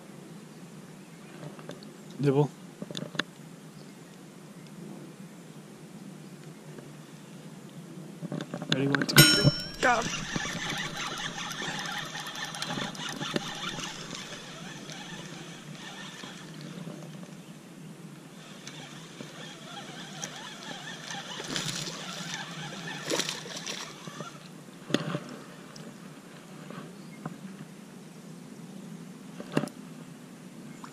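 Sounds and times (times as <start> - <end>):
fishing reel cranking: 9.2 - 16.8, 18.4 - 24.5
water lapping: 9.8 - 16.9, 18.4 - 24.5
fish splashing: 18.5 - 24.5.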